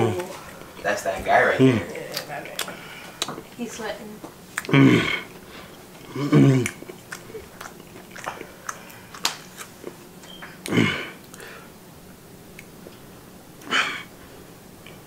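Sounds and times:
person chewing wetly: 0:01.6 - 0:03.6, 0:04.5 - 0:11.5.

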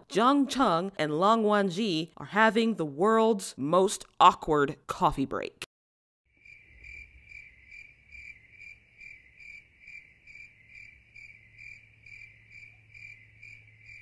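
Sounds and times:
cricket chirping: 0:06.3 - 0:14.0.

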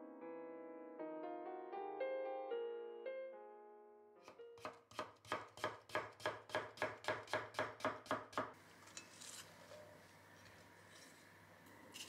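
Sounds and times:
knife chopping on wooden board: 0:04.2 - 0:08.5
soft rustling of vegetables: 0:08.6 - 0:12.0.

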